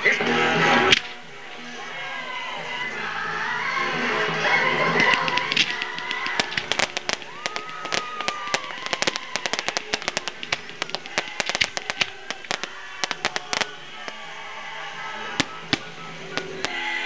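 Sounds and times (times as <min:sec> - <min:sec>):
fireworks cracking and popping: 0:04.8 - 0:16.9
firework whistle: 0:05.0 - 0:17.0.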